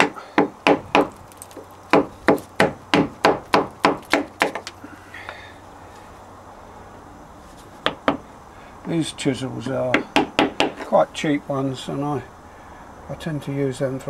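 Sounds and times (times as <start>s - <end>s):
mallet striking wood chisel: 1.9s - 4.7s, 9.9s - 10.9s.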